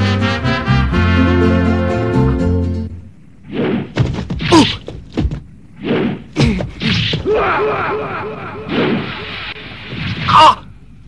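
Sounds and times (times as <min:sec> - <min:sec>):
brass music: 0:00.0 - 0:02.9.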